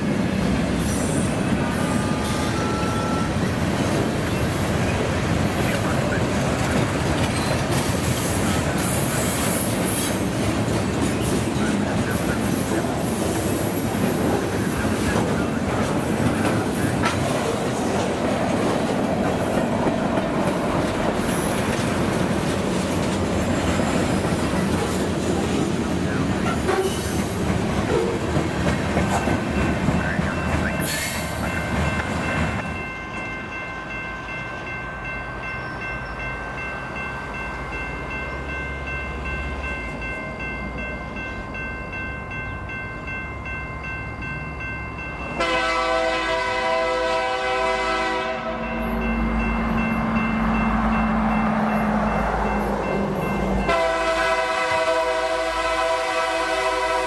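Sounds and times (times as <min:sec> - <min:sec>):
locomotives rumbling: 0:00.0 - 0:43.4
loud locomotive horn: 0:01.0 - 0:03.8, 0:26.4 - 0:27.2, 0:45.4 - 0:48.9, 0:53.6 - 0:57.0.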